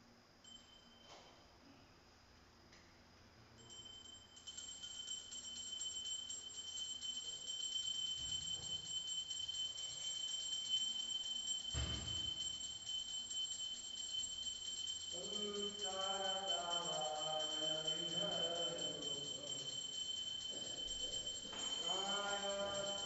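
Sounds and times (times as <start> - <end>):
hand bell ringing rapidly: 3.6 - 23.0.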